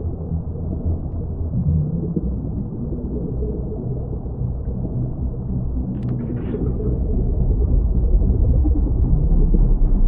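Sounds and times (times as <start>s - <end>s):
deep underwater rumble: 0.0s - 10.0s
crackle of clicks: 5.9s - 6.6s.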